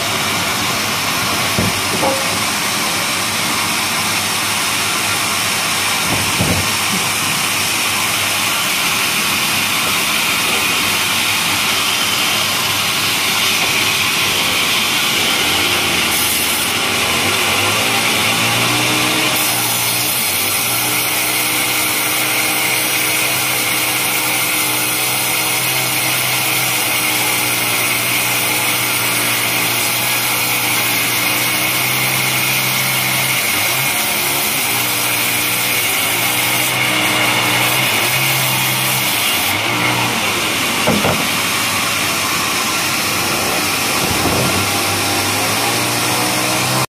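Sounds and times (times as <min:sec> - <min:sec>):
band saw cutting timber: 0:00.0 - 0:46.9.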